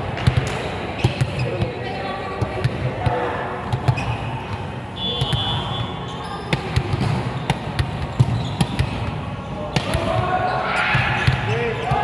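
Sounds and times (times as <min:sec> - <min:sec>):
low hum of hall: 0:00.0 - 0:12.0
shoe squeak: 0:01.0 - 0:01.6, 0:03.8 - 0:09.0.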